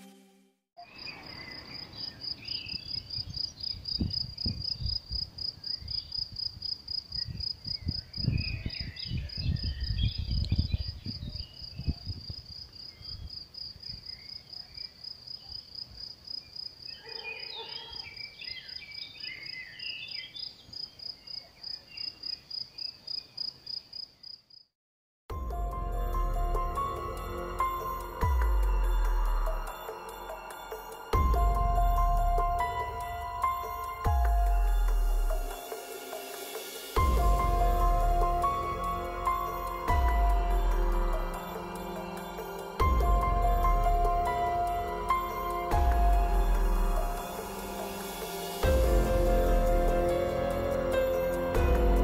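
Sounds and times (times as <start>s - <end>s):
cricket chirping: 0.8s - 24.7s
wind buffeting microphone: 2.7s - 14.1s.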